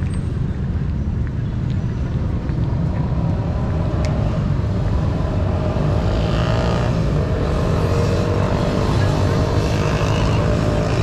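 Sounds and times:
road traffic rumble: 0.0s - 11.0s
vehicle passing: 2.8s - 11.0s.

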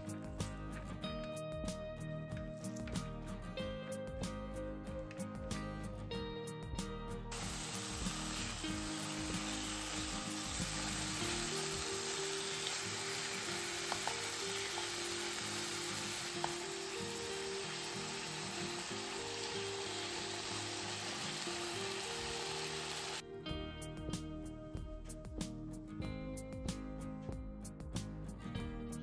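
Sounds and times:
meat sizzling in a frying pan: 7.3s - 23.2s.

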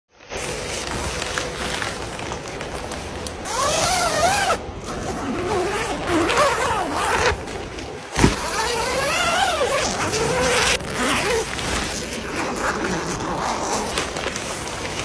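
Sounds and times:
fabric cover rustling: 0.1s - 15.0s
zipper unzipping: 3.4s - 7.6s, 8.2s - 15.0s.

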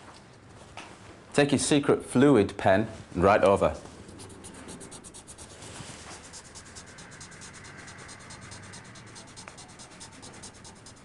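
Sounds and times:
pen scratching on paper: 4.0s - 11.0s.

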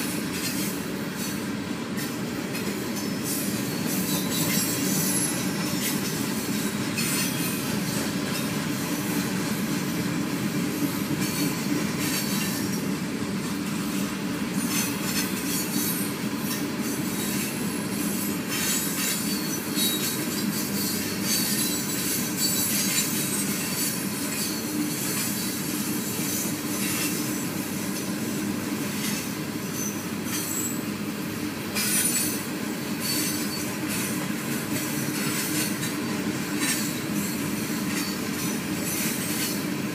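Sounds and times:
freight train wheels clattering: 0.0s - 39.9s
high wheel squeal: 3.0s - 9.2s, 16.8s - 27.2s, 29.0s - 30.8s, 33.0s - 34.0s.

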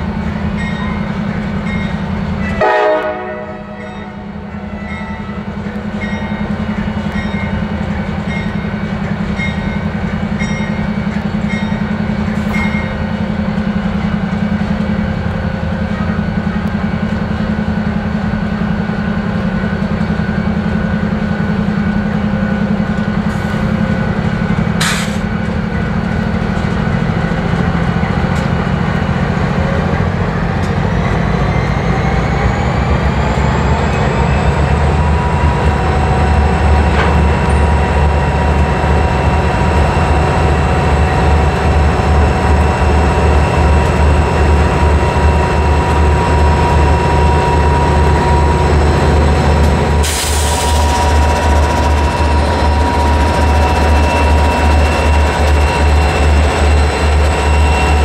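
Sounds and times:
diesel locomotive engines rumbling: 0.0s - 58.0s
click: 16.6s - 16.8s.

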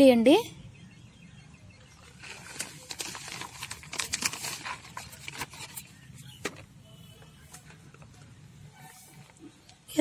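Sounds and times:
plastic packet crinkling: 2.0s - 6.0s.

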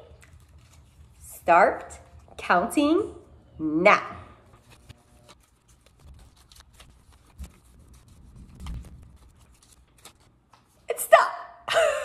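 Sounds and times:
paper rustles and ticks: 0.1s - 1.2s, 4.5s - 10.8s.

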